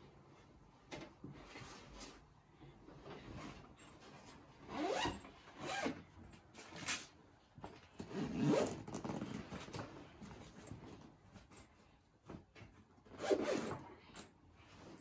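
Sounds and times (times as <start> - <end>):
zipper pulled shut: 8.0 - 9.6, 13.1 - 13.8.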